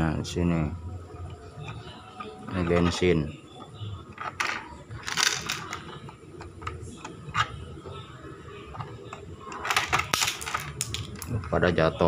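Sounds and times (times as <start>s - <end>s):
plastic parts scraping and clicking: 4.1s - 7.6s, 8.7s - 11.6s.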